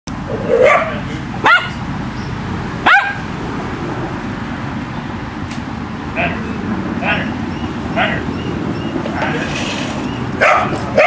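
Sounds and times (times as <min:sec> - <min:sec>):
dog barking: 0:00.4 - 0:01.8, 0:02.8 - 0:03.3, 0:10.4 - 0:11.0.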